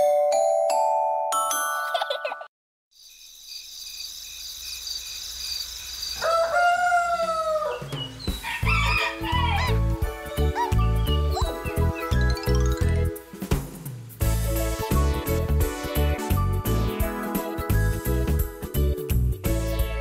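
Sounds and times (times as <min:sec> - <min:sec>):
chiming mallet jingle: 0:00.0 - 0:02.5, 0:10.8 - 0:13.2
high night insect chirring: 0:03.0 - 0:06.6
rooster crowing: 0:06.2 - 0:09.8
children's music with bird chirps: 0:06.8 - 0:20.0.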